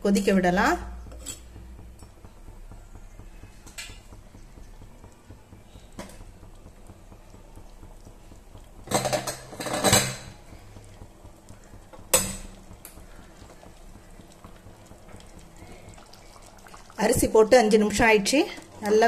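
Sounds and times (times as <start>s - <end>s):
metal utensils clattering: 8.9s - 10.3s.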